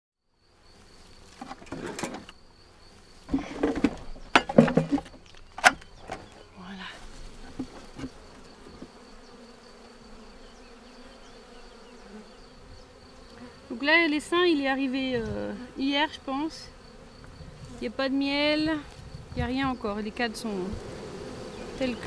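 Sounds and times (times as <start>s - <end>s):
honeybees buzzing: 0.4s - 22.0s
hive tool scraping wooden hive: 1.2s - 2.4s, 3.2s - 9.8s, 18.6s - 22.0s.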